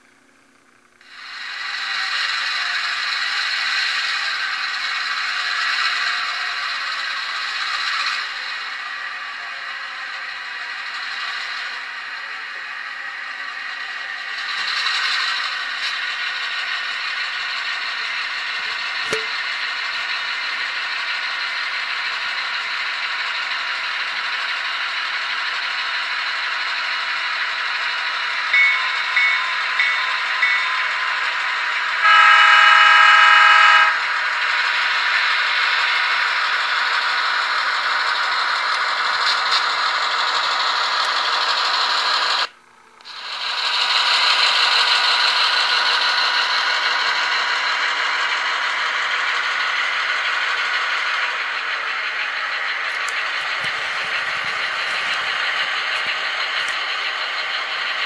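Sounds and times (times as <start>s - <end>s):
model locomotive diesel engine sound: 0.0s - 58.0s
short tones: 28.6s - 34.2s
locomotive horn blast: 32.0s - 34.1s.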